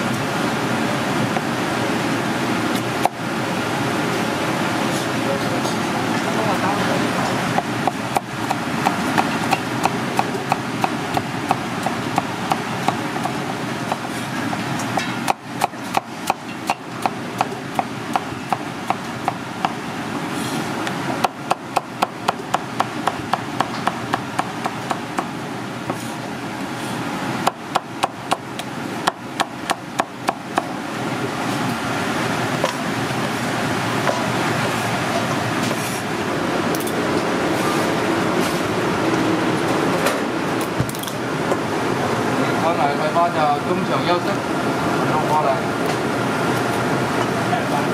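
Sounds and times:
steady background hum: 0.0s - 47.9s
cleaver chopping on wooden board: 7.6s - 19.8s.

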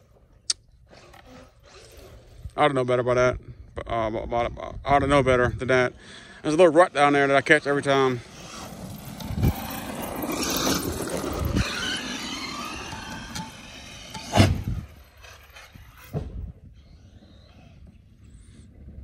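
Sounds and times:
electric rc truck motor whine: 0.9s - 2.6s, 7.2s - 19.0s
tyres rattling on dirt: 6.5s - 17.6s.

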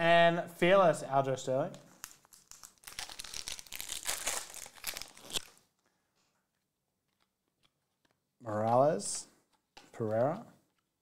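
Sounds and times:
foil wrapper crinkling: 1.9s - 5.6s.

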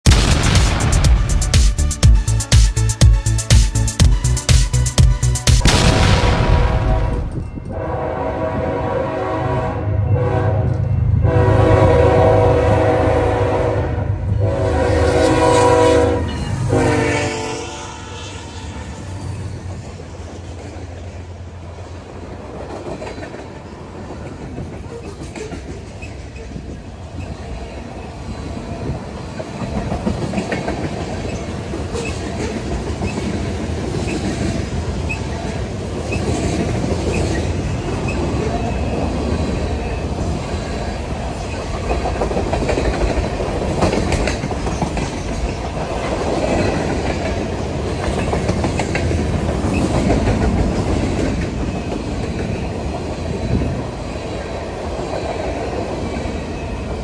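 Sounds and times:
train wheels rumbling on rails: 6.7s - 57.0s
clickety-clack over rail joints: 19.6s - 57.0s.

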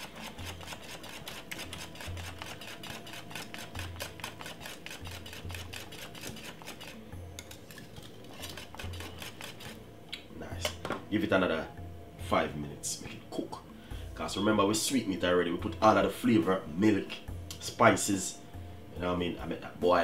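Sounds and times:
whisk clicking against metal pot: 0.0s - 9.7s.

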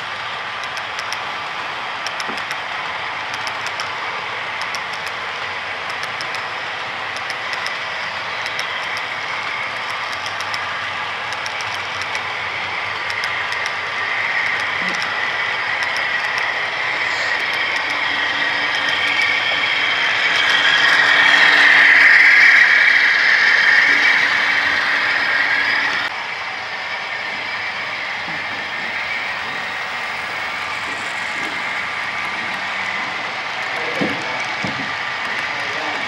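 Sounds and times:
model train wheels rattling: 0.0s - 22.3s, 27.4s - 36.0s.

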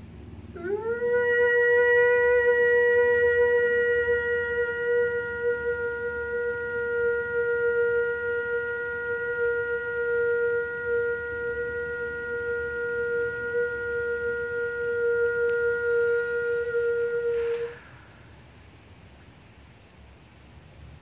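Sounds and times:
steady high tone: 10.5s - 18.1s.

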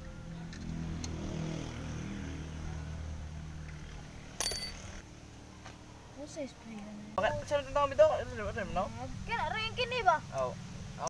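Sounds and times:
sharp ringing clink: 4.4s - 4.9s.

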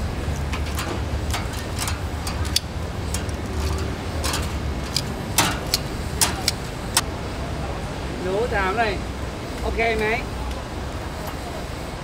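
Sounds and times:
steady low rumble: 0.0s - 8.3s
food grilling pops and crackles: 0.3s - 7.0s.

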